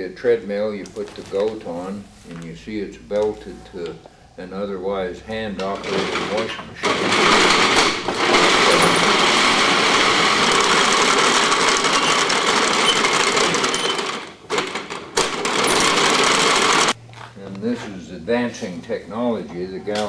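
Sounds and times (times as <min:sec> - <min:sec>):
wooden treadmill clattering: 0:05.6 - 0:17.0.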